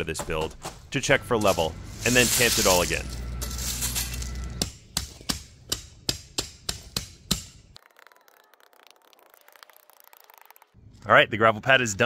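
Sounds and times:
hand tamper pounding gravel: 0:00.4 - 0:07.9.

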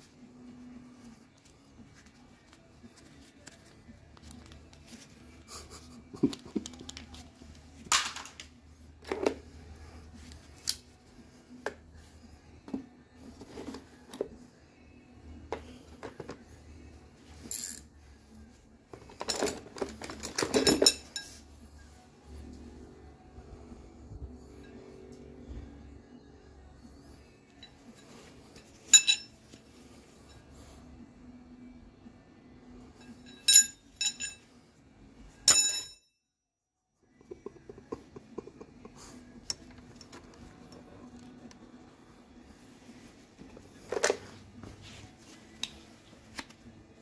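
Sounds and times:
metal tools clinking: 0:17.4 - 0:17.9, 0:19.0 - 0:21.4, 0:27.6 - 0:29.4, 0:33.0 - 0:34.5, 0:35.4 - 0:36.0.

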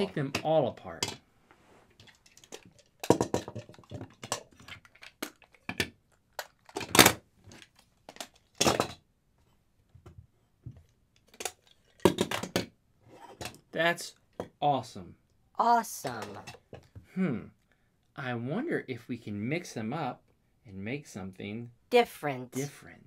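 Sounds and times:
plastic toy parts snapping: 0:02.4 - 0:08.9.

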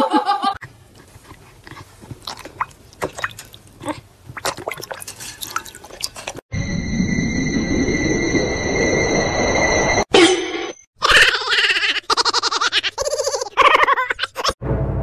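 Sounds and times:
dog lapping water from bowl: 0:01.6 - 0:06.4.

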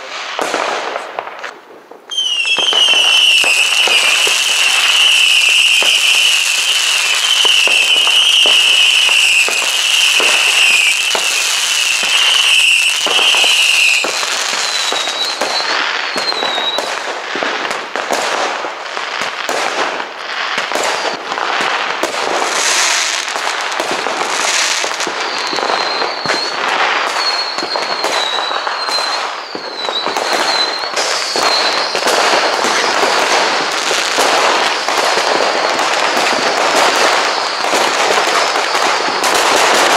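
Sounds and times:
fireworks banging and crackling: 0:00.0 - 0:39.9
steady high whistle: 0:02.1 - 0:16.9, 0:24.4 - 0:39.6
wavering firework whistles: 0:02.1 - 0:39.9.

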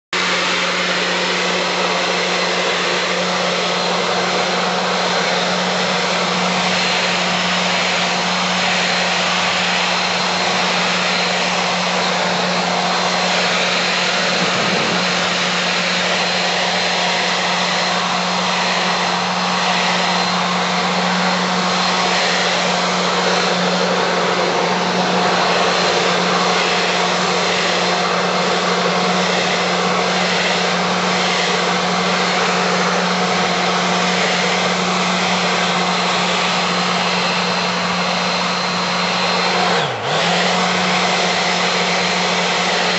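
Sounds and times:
leaf blower motor hum: 0:00.1 - 0:42.9
rush of air: 0:00.2 - 0:31.9.

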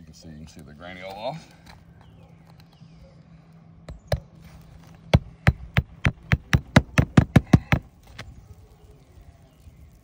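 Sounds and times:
hammer striking nail: 0:05.1 - 0:07.9.

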